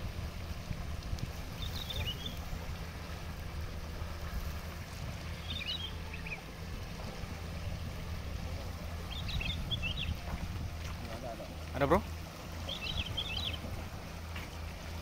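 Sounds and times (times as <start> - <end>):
high bird chirps: 1.6 - 2.4, 5.4 - 6.4, 9.1 - 10.2, 12.7 - 13.6.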